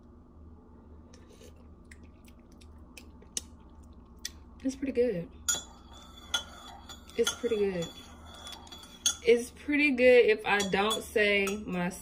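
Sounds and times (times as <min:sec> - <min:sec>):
person sipping coffee: 0:01.1 - 0:04.3.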